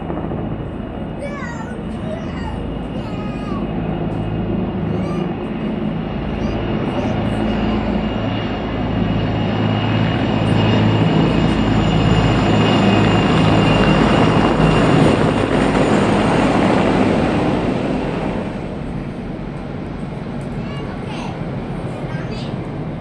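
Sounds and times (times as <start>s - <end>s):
helicopters passing overhead: 0.0s - 23.0s.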